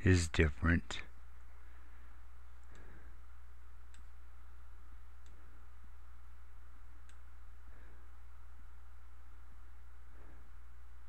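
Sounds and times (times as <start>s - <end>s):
low electrical hum: 0.0s - 11.0s
computer mouse clicking: 3.8s - 4.2s, 5.2s - 5.4s, 7.0s - 7.3s.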